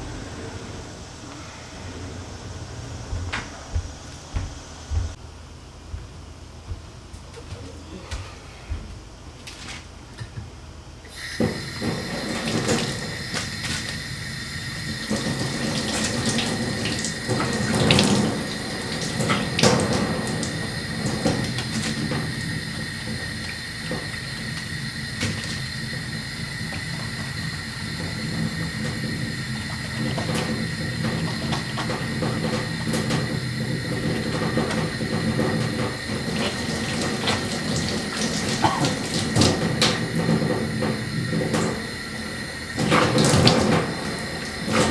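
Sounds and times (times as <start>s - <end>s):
tap running into metal sink: 11.1s - 14.1s, 14.8s - 42.0s, 42.7s - 44.9s
water splashing from face washing: 11.1s - 44.9s
splashing of hands washing: 29.6s - 41.8s.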